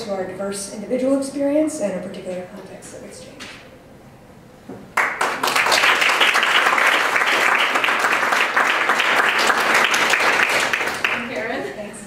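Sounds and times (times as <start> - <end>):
audience applauding: 5.0 - 11.6.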